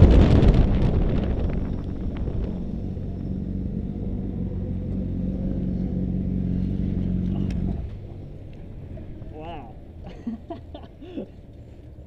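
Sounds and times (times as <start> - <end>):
wind noise on microphone: 0.0 - 4.3
motorcycle engine idling: 1.6 - 12.0.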